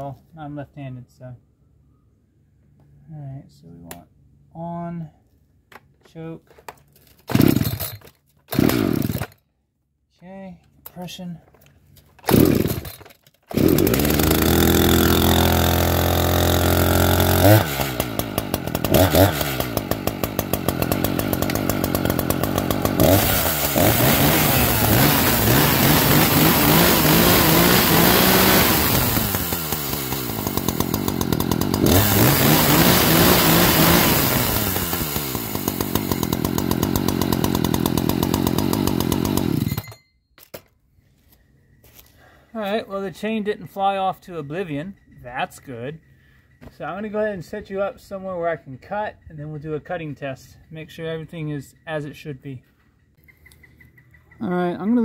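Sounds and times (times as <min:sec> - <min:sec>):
chainsaw idling and revving: 0:07.3 - 0:09.4, 0:12.2 - 0:40.0.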